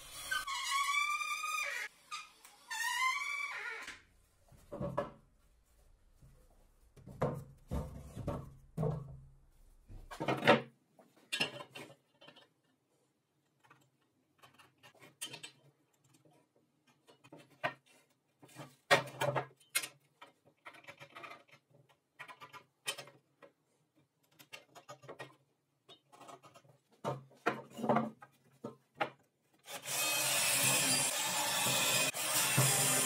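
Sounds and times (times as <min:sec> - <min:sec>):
wooden clatters: 0:26.1 - 0:29.2.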